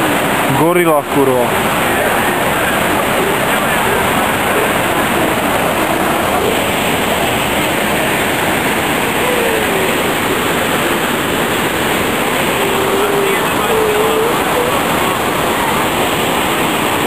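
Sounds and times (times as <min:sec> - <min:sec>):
waterfall roaring over rock: 0:00.0 - 0:17.0.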